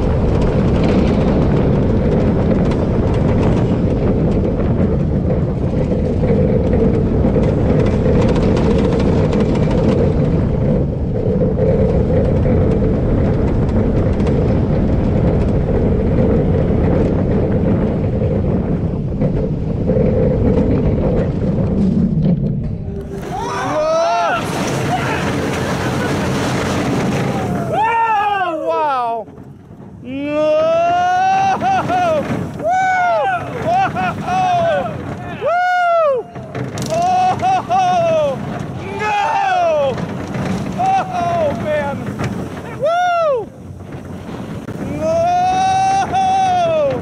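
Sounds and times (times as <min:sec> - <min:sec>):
roller coaster wheels rumbling on track: 0:00.0 - 0:47.0
wind rushing over camera: 0:00.0 - 0:47.0.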